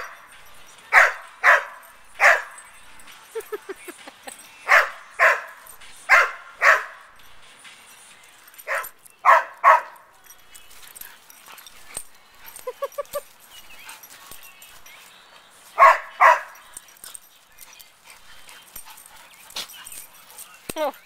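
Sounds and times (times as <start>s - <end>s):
dog barking: 0.0s - 0.3s, 0.9s - 2.6s, 4.6s - 7.1s, 8.6s - 10.1s, 15.8s - 16.7s.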